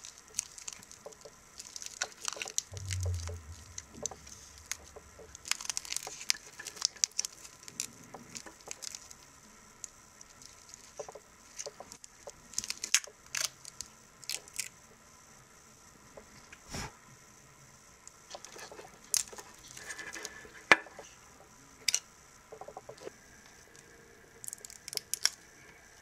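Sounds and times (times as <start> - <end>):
plastic film peeling and crinkling: 0.0 - 2.7, 4.7 - 9.2, 10.2 - 14.7.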